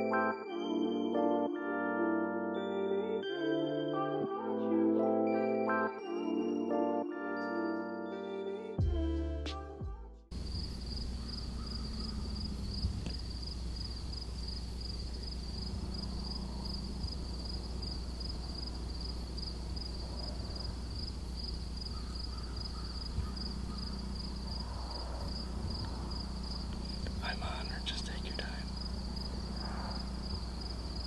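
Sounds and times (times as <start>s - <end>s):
background music: 0.0s - 10.3s
crickets chirping: 10.3s - 31.0s
low rumble: 11.9s - 21.7s, 23.1s - 27.9s, 28.6s - 31.0s.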